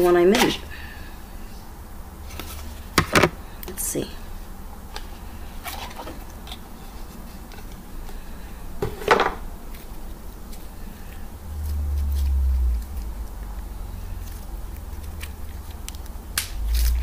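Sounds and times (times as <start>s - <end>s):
low rumble: 11.4s - 15.1s.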